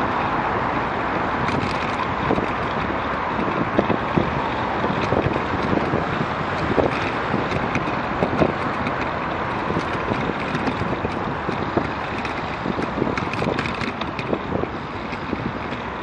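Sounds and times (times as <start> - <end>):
road traffic noise: 0.0 - 16.0
wind buffeting microphone: 0.0 - 16.0.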